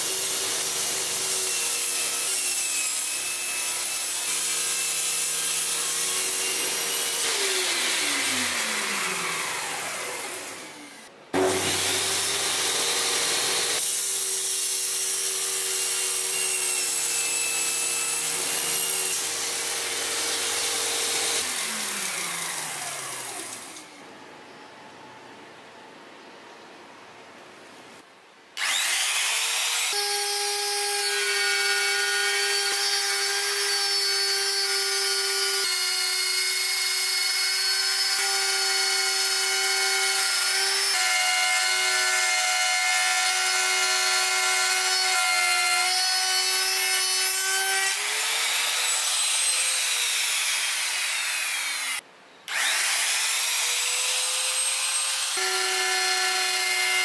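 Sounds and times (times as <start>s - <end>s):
router motor whining: 28.6s - 57.0s.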